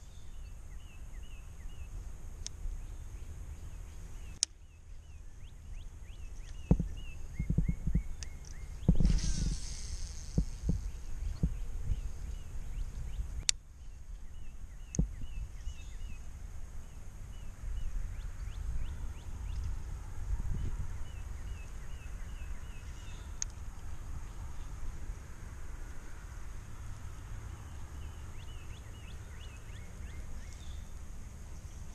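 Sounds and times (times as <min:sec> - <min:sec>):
small bird chirping: 0:00.0 - 0:19.8, 0:20.5 - 0:24.8, 0:27.4 - 0:31.9
wind on microphone: 0:06.5 - 0:16.3, 0:17.3 - 0:23.4
sharp clicks: 0:13.4 - 0:13.6.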